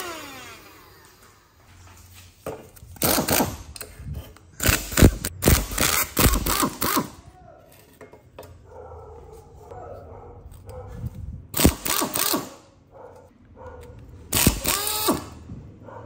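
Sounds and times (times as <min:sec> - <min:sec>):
powered screwdriver running: 0:00.0 - 0:01.2, 0:11.6 - 0:12.6, 0:14.3 - 0:15.4.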